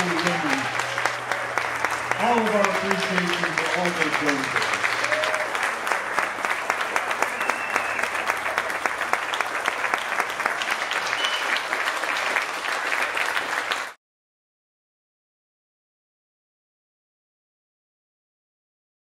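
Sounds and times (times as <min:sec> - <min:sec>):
audience applauding: 0:00.0 - 0:14.0.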